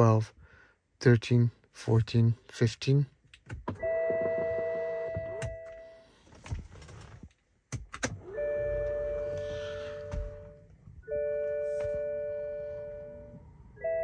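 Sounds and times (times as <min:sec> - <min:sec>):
ignition clicks: 0:03.3 - 0:12.1
dashboard warning chime: 0:03.8 - 0:06.1, 0:08.2 - 0:14.0.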